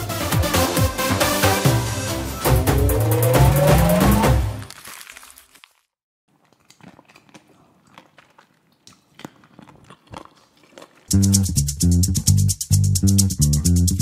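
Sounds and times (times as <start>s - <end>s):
music: 0.0s - 4.7s, 11.1s - 14.0s
man chewing food: 5.1s - 11.6s.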